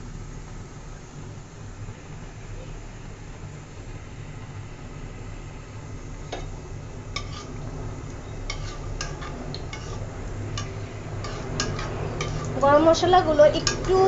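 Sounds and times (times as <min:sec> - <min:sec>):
steady low hum: 0:00.0 - 0:14.0
metal spatula clinking on pot: 0:10.6 - 0:12.5.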